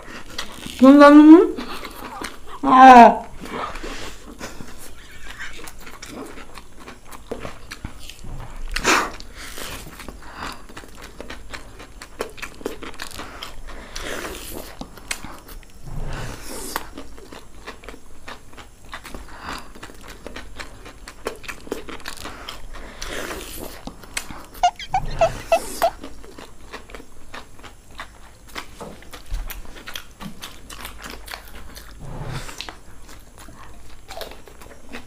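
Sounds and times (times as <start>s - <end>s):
people chewing noodles: 0.0s - 35.0s.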